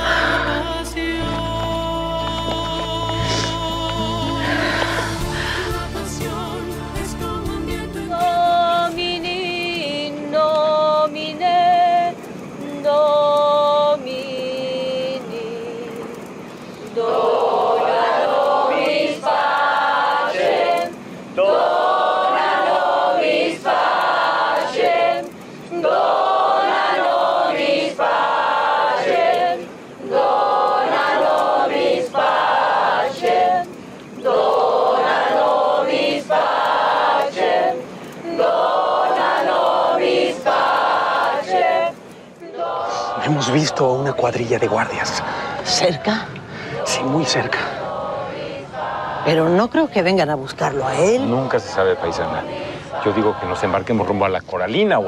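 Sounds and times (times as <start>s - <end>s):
group of voices chanting: 17.0s - 49.6s, 50.8s - 54.2s.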